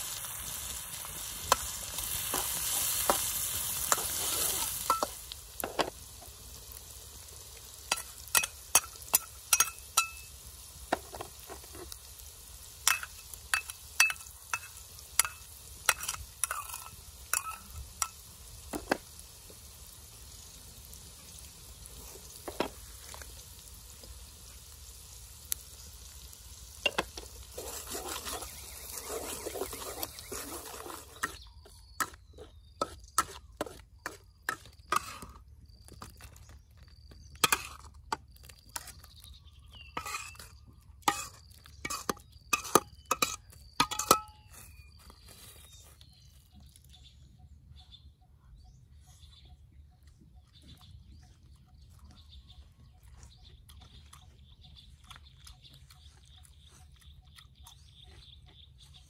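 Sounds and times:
sauce sizzling in oil: 0.0 - 32.2, 40.0 - 44.2
metal spoon scraping a wok: 0.2 - 5.9, 7.9 - 12.0, 12.6 - 18.3, 26.9 - 35.4, 37.4 - 38.2, 39.9 - 44.8.

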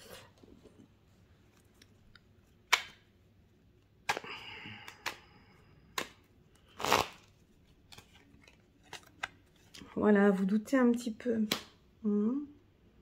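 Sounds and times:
cards rustling together: 1.4 - 10.0
cards snapping: 2.6 - 3.1, 4.0 - 5.3, 5.9 - 9.4, 11.5 - 11.8.

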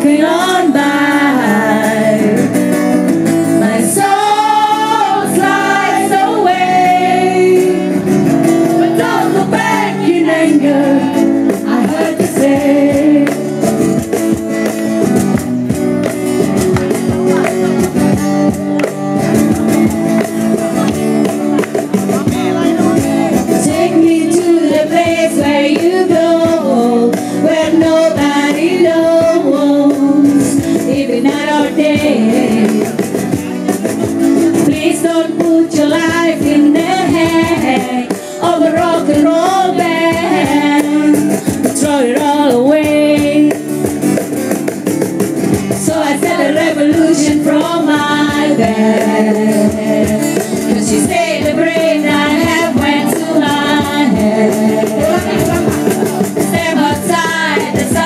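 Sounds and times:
guitar accompaniment: 0.0 - 58.0
person singing: 22.4 - 33.0, 45.9 - 58.0.

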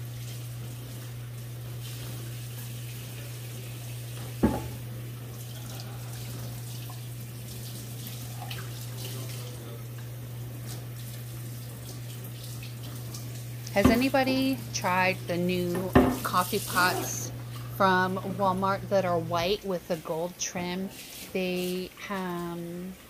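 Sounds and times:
faucet water running onto board: 0.2 - 14.9, 20.9 - 22.5.

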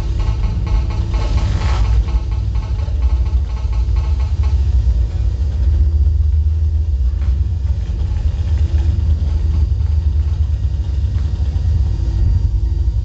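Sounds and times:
deep bass drone: 0.0 - 13.0.

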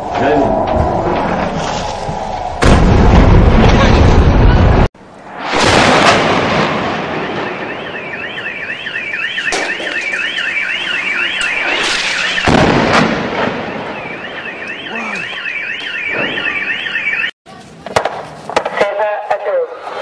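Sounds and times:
loud bang: 2.5 - 8.0, 11.4 - 14.0
car alarm warbling: 7.0 - 17.4.

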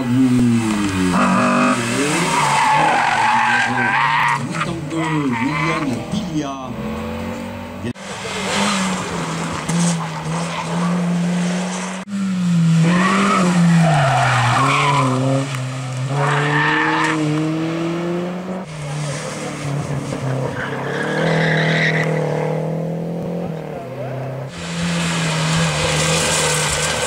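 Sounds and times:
race car engines revving: 0.0 - 27.0
tyres squealing: 1.1 - 6.1.

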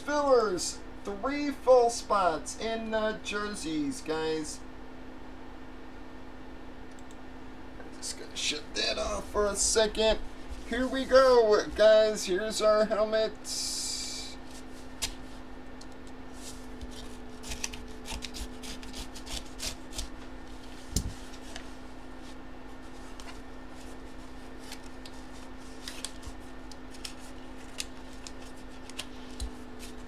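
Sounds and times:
faint steady hum: 0.0 - 30.0
paper and cardboard rustling: 16.3 - 30.0.

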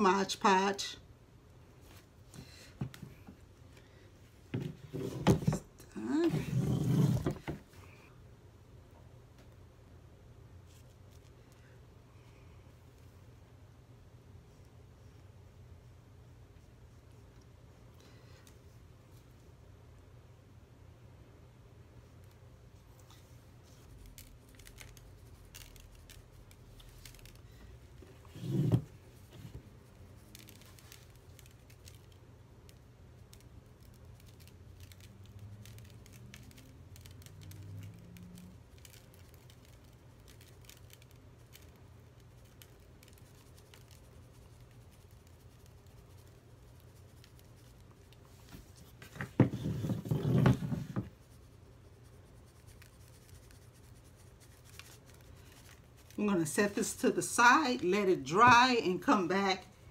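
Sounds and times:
rustling and knocking of tray: 48.5 - 51.2.

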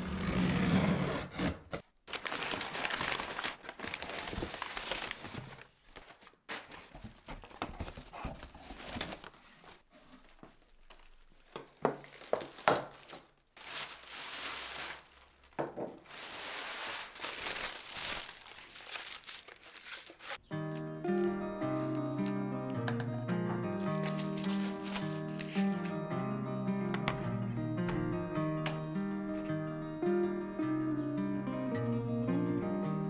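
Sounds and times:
paper and plastic crinkling: 2.0 - 22.3, 23.7 - 26.0
paper tearing: 16.1 - 20.8, 23.8 - 26.0.

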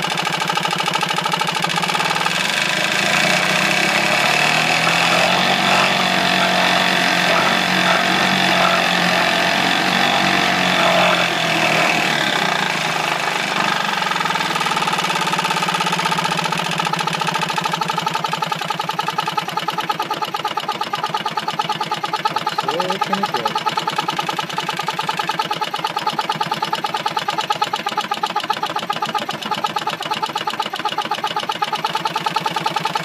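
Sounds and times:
outboard motor running: 0.0 - 33.0
propeller churning water: 0.1 - 33.0.

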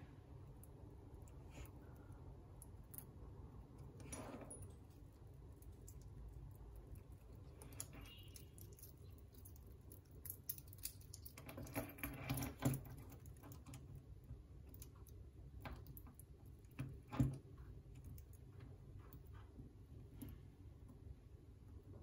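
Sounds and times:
metal links clicking: 3.8 - 14.0.

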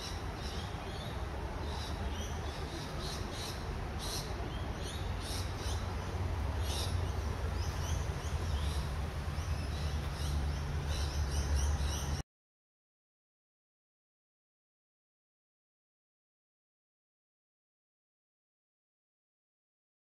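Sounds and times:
small birds chirping: 0.0 - 12.2.

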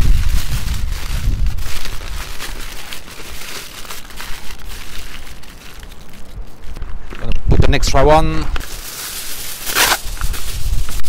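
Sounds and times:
kitchen foil crinkling: 0.0 - 6.8, 8.6 - 11.0.

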